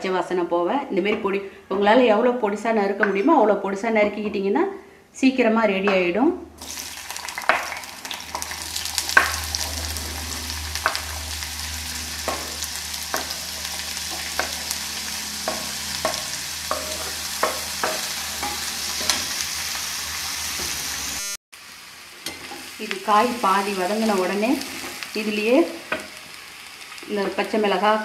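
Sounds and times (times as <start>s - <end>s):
vegetables sizzling in hot oil: 6.6s - 28.0s
spatula stirring: 7.2s - 19.4s.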